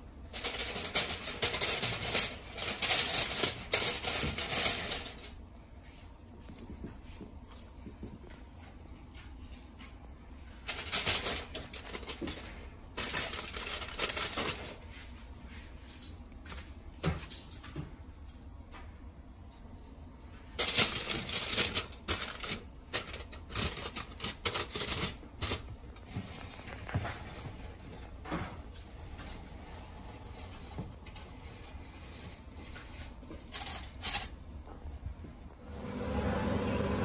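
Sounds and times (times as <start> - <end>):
aluminium foil crinkling: 0.3 - 5.4, 10.5 - 15.1, 20.5 - 28.2, 30.3 - 34.4.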